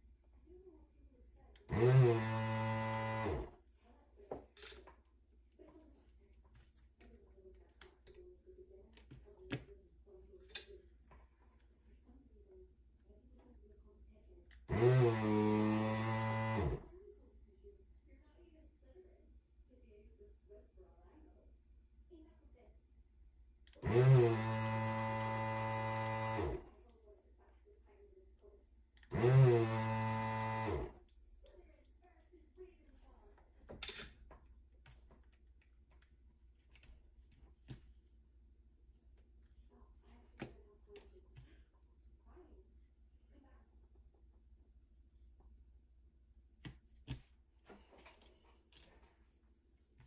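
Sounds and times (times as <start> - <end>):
desoldering pump motor hum: 1.6 - 3.6, 14.5 - 16.8, 23.7 - 26.7, 29.0 - 31.0.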